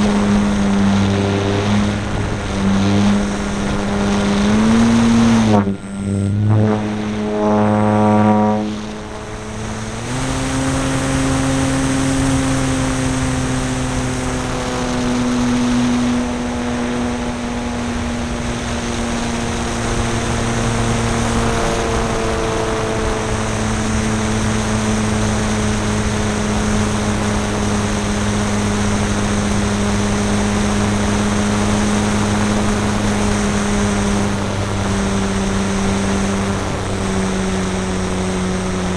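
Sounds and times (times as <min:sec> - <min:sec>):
electric motor and propeller whine: 0:00.0 - 0:38.9
wind rushing over microphone: 0:00.0 - 0:38.9.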